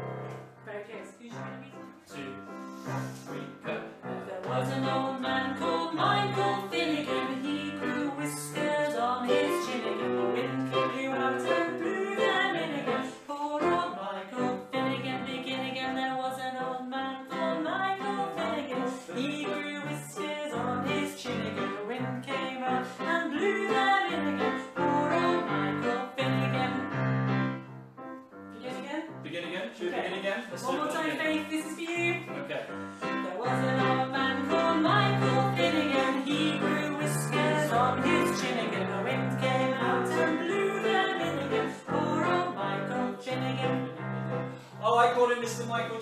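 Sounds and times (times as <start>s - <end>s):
digital piano accompaniment: 0.0s - 46.0s
woman singing: 4.2s - 27.2s, 30.6s - 32.3s, 33.0s - 44.5s.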